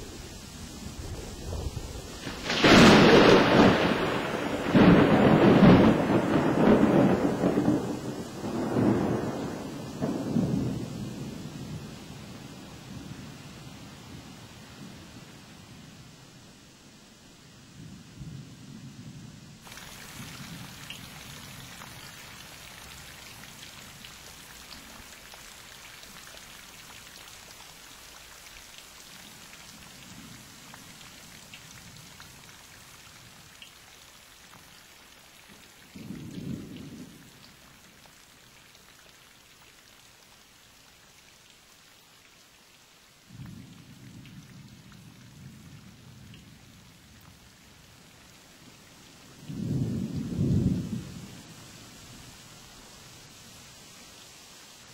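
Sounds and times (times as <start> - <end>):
rain hissing: 0.0 - 54.9
thunder rolling: 1.0 - 10.9.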